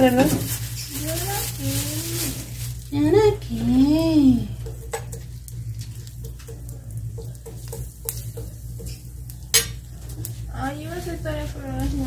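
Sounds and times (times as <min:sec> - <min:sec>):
onion sizzling in oil: 0:00.0 - 0:12.0
metal spoon stirring: 0:04.4 - 0:10.3.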